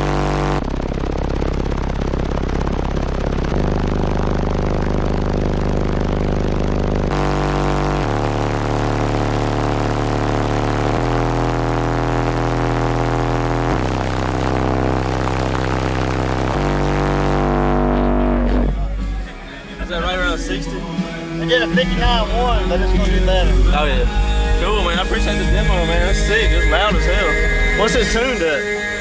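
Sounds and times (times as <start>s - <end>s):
loud bass-heavy music from subwoofers: 0.0s - 29.0s
buzzing haze: 7.1s - 18.8s.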